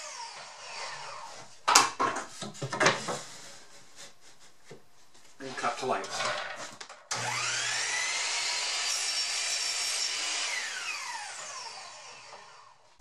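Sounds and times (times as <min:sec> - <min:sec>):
saw cutting wood: 0:00.0 - 0:01.3, 0:07.1 - 0:12.9
miter saw motor whine: 0:07.2 - 0:12.8.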